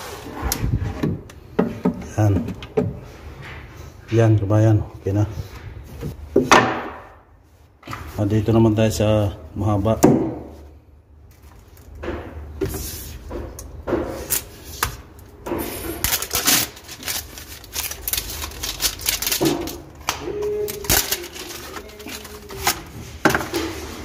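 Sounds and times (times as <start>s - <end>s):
paper wrapping rustling: 16.0s - 24.0s.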